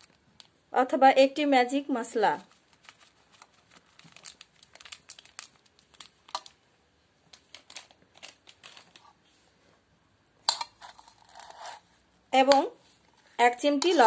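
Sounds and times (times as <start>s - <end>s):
plastic sachet crinkling: 0.0s - 0.6s, 2.4s - 6.6s, 7.3s - 9.1s.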